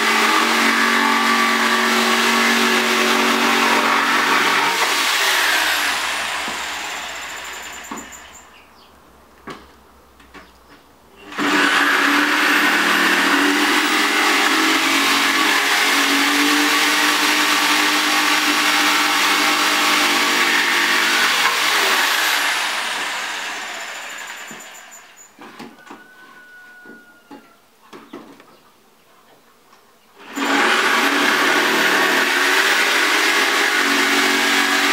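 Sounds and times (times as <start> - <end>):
electric jigsaw cutting wood: 0.0 - 8.3, 11.2 - 25.0, 30.2 - 34.9.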